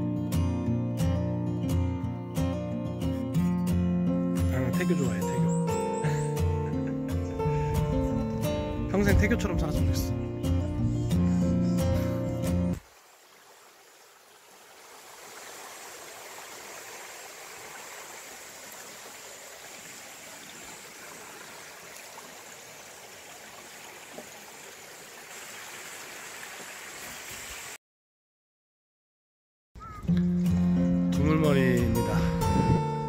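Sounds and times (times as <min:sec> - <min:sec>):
stream babbling over stones: 0:12.8 - 0:27.8.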